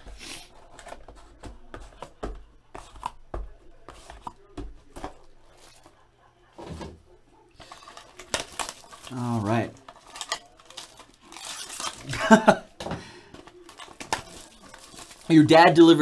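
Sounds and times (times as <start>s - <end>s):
cardboard boxes tapping and scraping: 0.0s - 5.2s.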